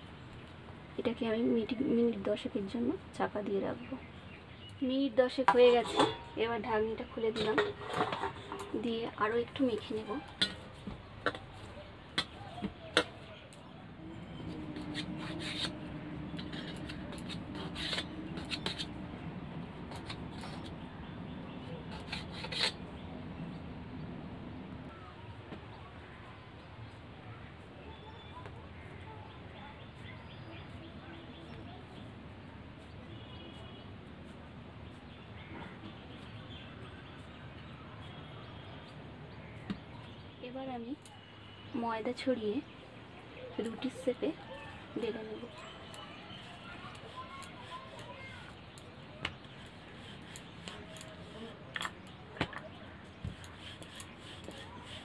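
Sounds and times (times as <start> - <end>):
hands rubbing dough on metal: 5.2 - 24.1, 43.6 - 55.0
low steady hum: 13.6 - 25.3.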